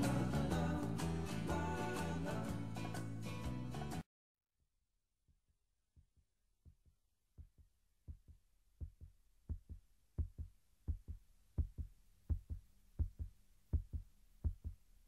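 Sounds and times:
heartbeat thumps in music: 6.0 - 14.8.

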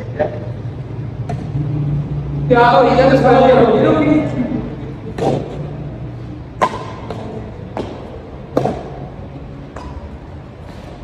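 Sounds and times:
rackets hitting shuttlecock: 1.2 - 1.6, 5.0 - 5.8, 6.4 - 10.5.

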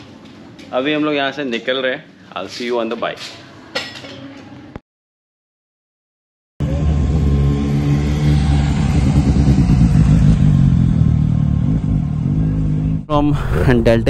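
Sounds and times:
motorcycles riding past slowly: 6.6 - 13.1.

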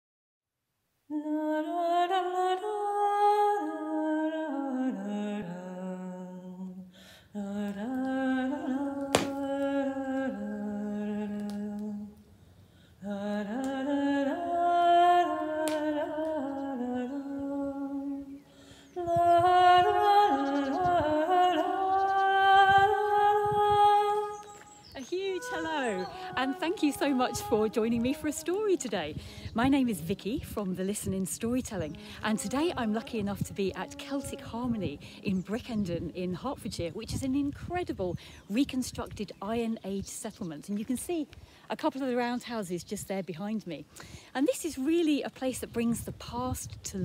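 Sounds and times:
woman humming: 13.0 - 18.4, 19.0 - 30.2, 31.0 - 36.3.

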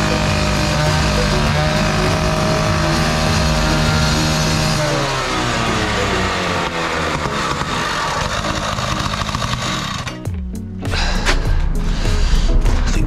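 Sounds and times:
cut-off saw engine revving: 0.0 - 10.3.

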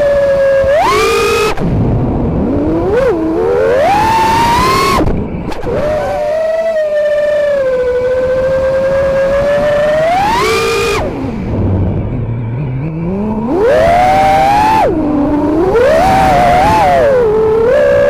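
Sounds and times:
drone motors whining: 0.0 - 18.0.

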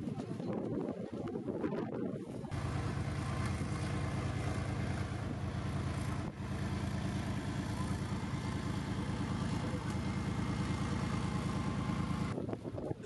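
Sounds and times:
muffled crowd noise: 0.0 - 3.6, 7.4 - 11.8
wind: 0.0 - 13.0
diesel engine running at low revs: 0.5 - 13.0.

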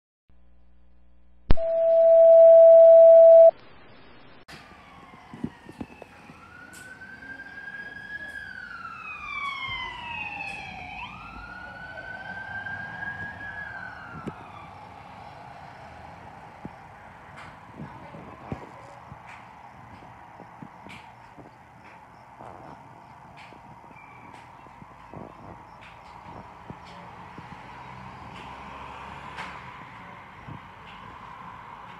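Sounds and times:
loud steady tone: 1.5 - 3.6
police sirens wailing: 4.5 - 31.9.

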